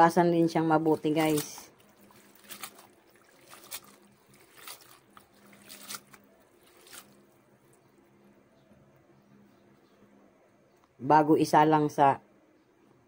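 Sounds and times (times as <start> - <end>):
hand washing noodles in water: 0.4 - 7.8.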